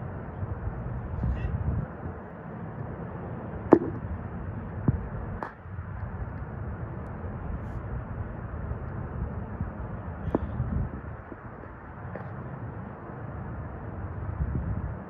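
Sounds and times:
low rumble and hiss: 0:00.0 - 0:15.0
sharp knocks of camera handling: 0:03.7 - 0:04.0.

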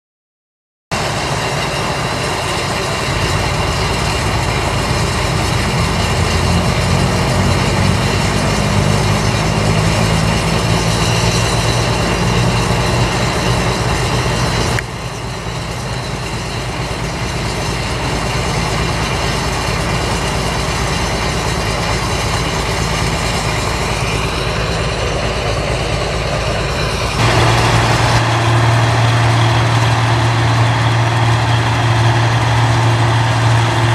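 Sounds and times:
combine harvester engine hum: 0:00.9 - 0:33.9
deep hum: 0:02.9 - 0:16.2, 0:22.6 - 0:33.9.

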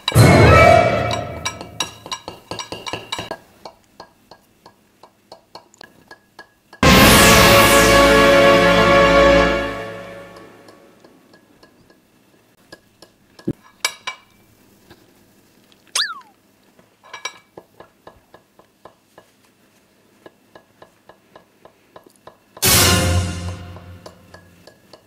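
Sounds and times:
forks clinking on ceramic plate: 0:01.1 - 0:03.4
short falling squeak: 0:16.0 - 0:16.3.

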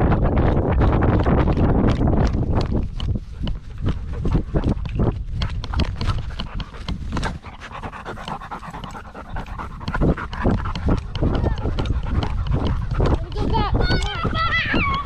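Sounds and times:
dog panting: 0:03.0 - 0:15.0.

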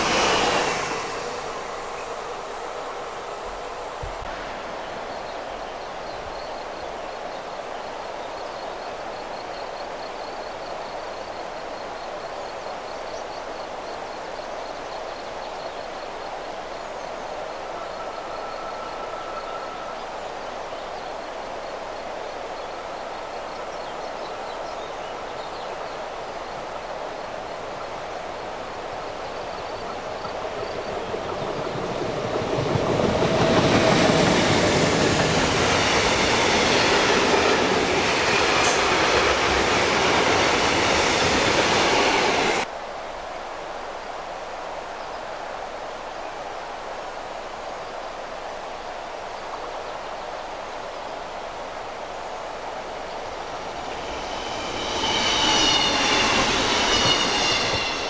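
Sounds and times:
train rolling on rails: 0:00.0 - 0:42.7, 0:44.8 - 0:58.0.

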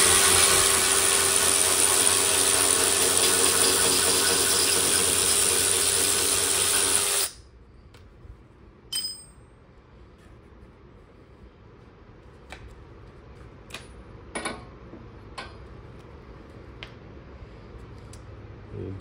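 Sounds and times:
hand tools clinking: 0:08.9 - 0:09.4
bright ringing clink: 0:08.9 - 0:09.6.

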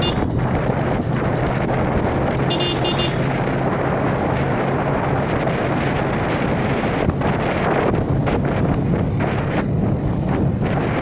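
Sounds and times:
road and wind noise: 0:00.0 - 0:11.0
vehicle engine hum: 0:00.0 - 0:11.0
short horn beeps: 0:02.5 - 0:03.2.

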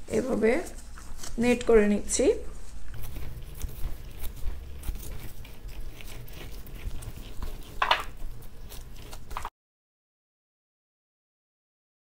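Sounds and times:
dough kneading squishing: 0:00.0 - 0:09.5.

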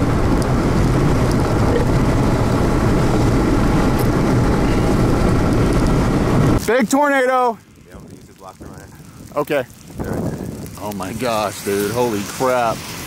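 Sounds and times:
road and wind noise in car cabin: 0:00.0 - 0:07.4.

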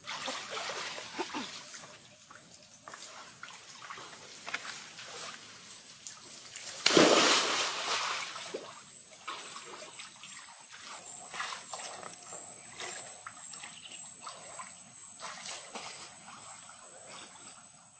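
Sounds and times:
person splashing into pool: 0:00.0 - 0:01.6, 0:06.7 - 0:10.4
water splashing and sloshing: 0:00.0 - 0:17.8.

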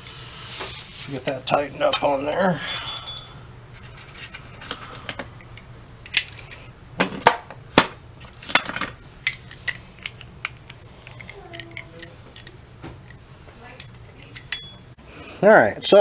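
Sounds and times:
wrench clinking on metal bolts: 0:13.8 - 0:14.8.

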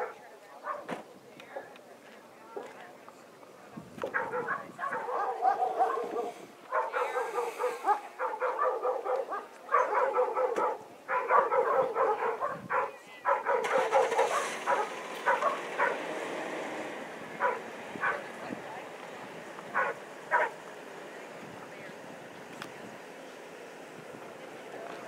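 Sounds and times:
dog barking: 0:00.0 - 0:01.7, 0:04.1 - 0:16.1, 0:17.4 - 0:18.2, 0:19.7 - 0:20.6.

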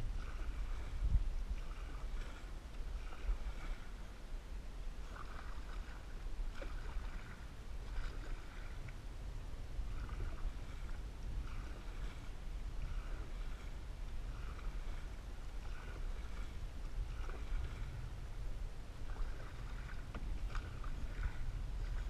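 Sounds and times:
low rumble: 0:00.0 - 0:22.0
paddle splashing in water: 0:00.0 - 0:22.0.

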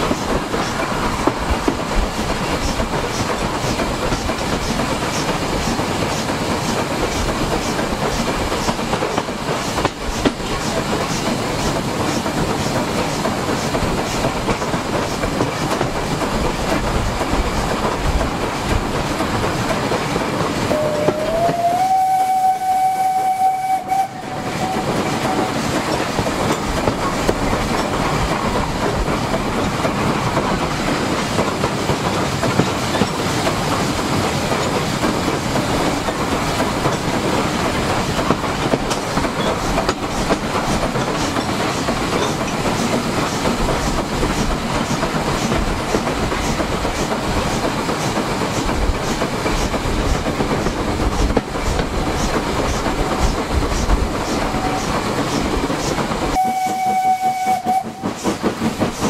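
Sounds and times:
train wheel clatter: 0:00.0 - 0:59.0
steam whistle: 0:20.7 - 0:25.6, 0:56.4 - 0:58.2.

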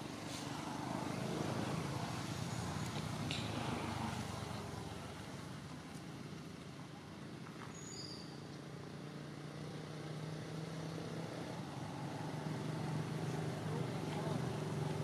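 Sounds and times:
vehicle engine running: 0:11.4 - 0:15.0.

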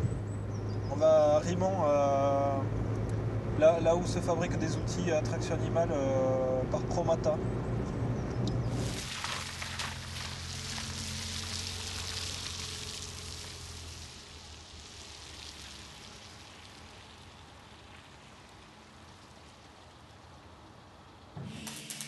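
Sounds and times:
car engine humming: 0:00.0 - 0:21.4
tyres hissing on wet road: 0:08.7 - 0:21.9.

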